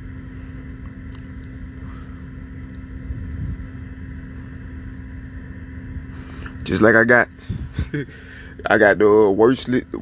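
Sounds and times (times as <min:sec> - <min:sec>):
faint steady hum: 0:00.0 - 0:10.0
low background rumble: 0:00.0 - 0:10.0.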